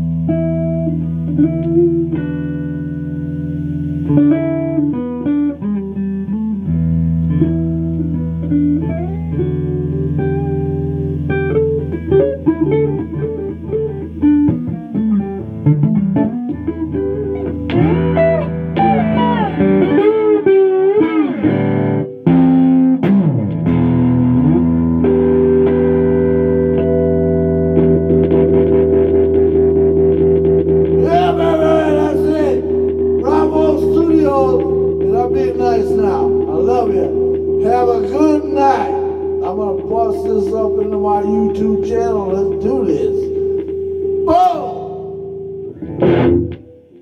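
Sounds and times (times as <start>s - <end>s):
blues electric guitar lead: 0.0s - 47.0s
steady low held tones: 24.0s - 47.0s.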